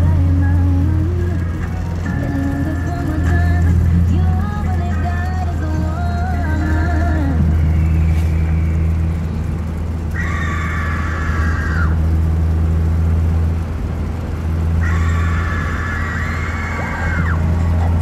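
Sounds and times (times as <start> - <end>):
music with high held notes: 0.0 - 9.5
car driving rumble from inside: 0.0 - 18.0.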